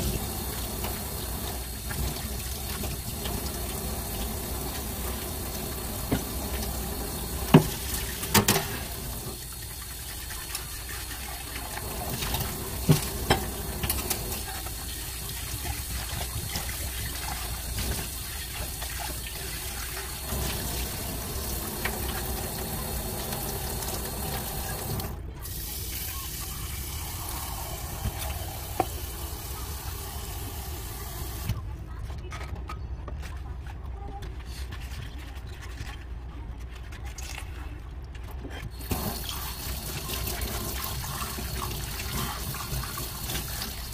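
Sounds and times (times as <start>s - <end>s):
tap running into sink: 5.6s - 9.5s, 11.8s - 14.4s, 28.0s - 29.2s.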